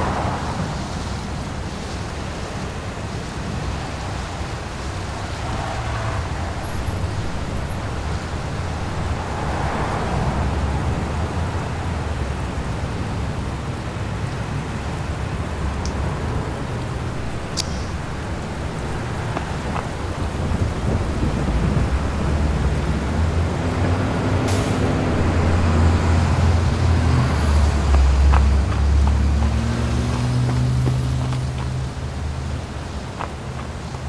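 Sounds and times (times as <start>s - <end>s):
sharp click: 17.5s - 17.9s.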